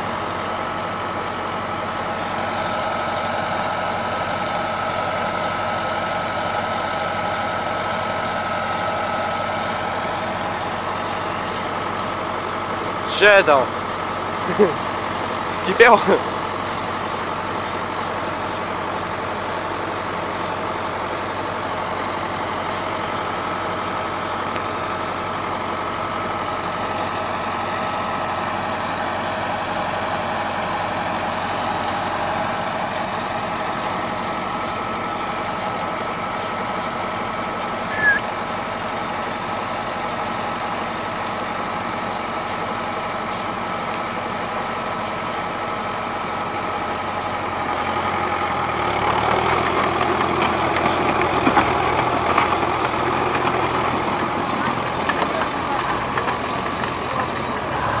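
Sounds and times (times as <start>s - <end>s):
diesel engine idling: 0.0s - 58.0s
short high-pitched squeak: 37.9s - 38.3s.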